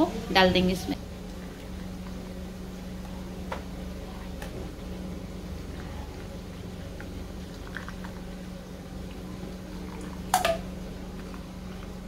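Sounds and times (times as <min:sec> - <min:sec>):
steady low hum: 0:00.0 - 0:12.0
tea pouring into cups: 0:05.6 - 0:11.9.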